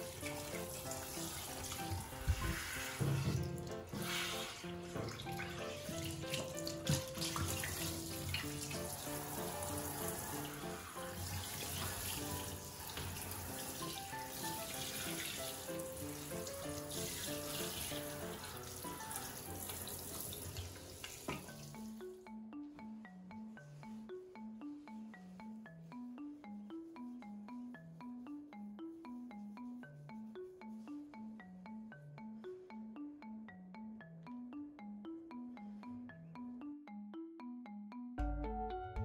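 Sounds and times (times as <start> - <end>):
mallet percussion melody: 0.0 - 19.9, 21.3 - 39.0
shower head spraying water: 0.0 - 21.6.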